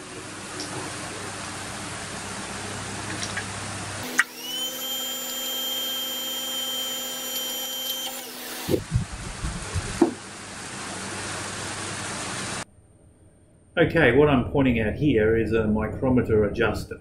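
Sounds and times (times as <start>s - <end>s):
electric motor and pump whine: 4.0s - 12.6s.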